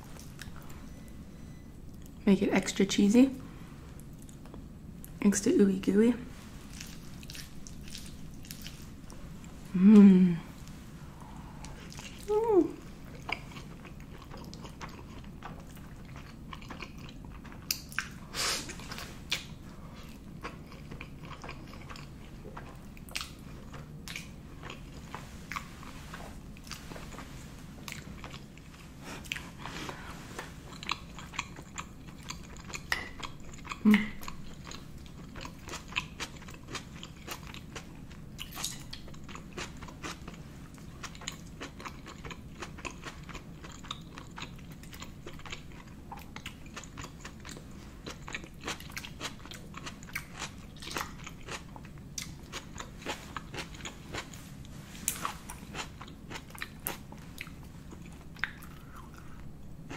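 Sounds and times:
wet chewing: 6.7 - 9.1, 18.8 - 54.4
person humming: 9.7 - 10.5, 11.3 - 12.8.

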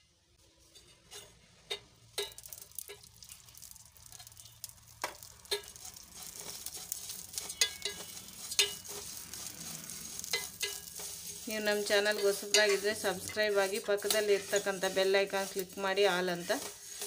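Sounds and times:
sizzling in a pan: 0.0 - 17.0
rice flakes crackling: 1.0 - 17.0
spoon clinking against pan: 5.5 - 5.8, 7.3 - 9.0, 10.3 - 11.1, 12.0 - 12.9.

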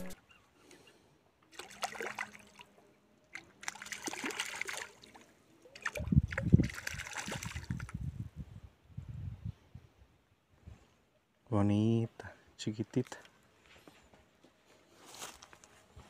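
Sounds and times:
fish splashing at water surface: 1.5 - 2.7, 3.3 - 5.2, 5.8 - 7.9.

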